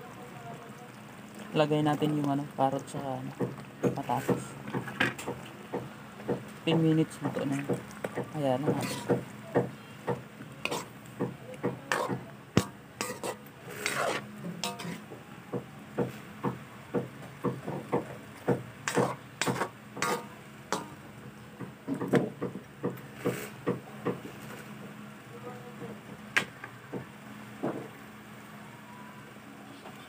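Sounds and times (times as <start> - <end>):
utensil stirring stew in a wok: 0.0 - 25.0
utensil knocking and scraping pan: 3.4 - 15.1, 17.0 - 21.0.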